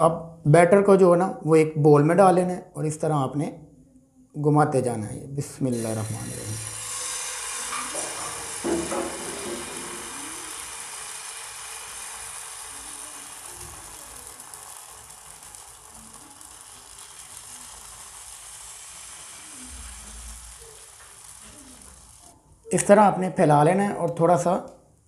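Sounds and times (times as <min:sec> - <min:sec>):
batter sizzling in a frying pan: 0:05.7 - 0:22.8.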